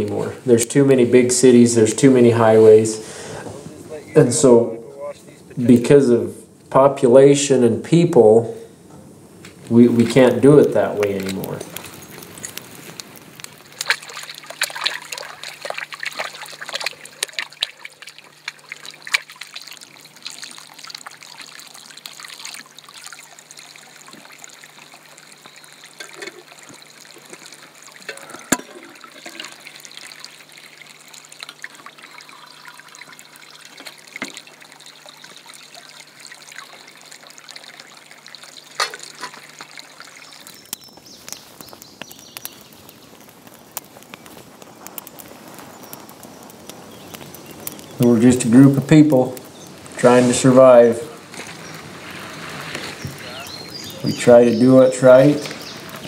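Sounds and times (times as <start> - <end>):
water splashing in a tank: 10.0 - 43.8, 47.4 - 56.0
metal pot being filled: 13.4 - 40.9.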